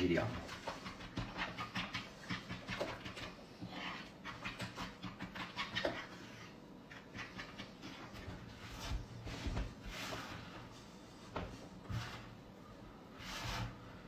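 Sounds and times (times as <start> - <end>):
fork beating eggs: 0.0 - 9.1.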